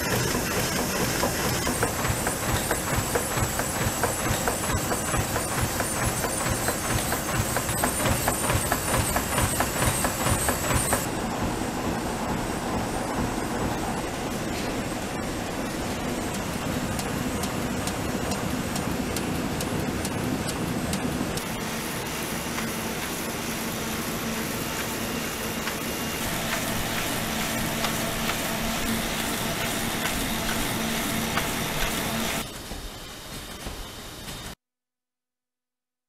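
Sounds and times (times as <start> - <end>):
printing press rapid clicking: 0.0 - 11.1, 24.7 - 32.5
die-cutting machine humming: 0.0 - 32.5.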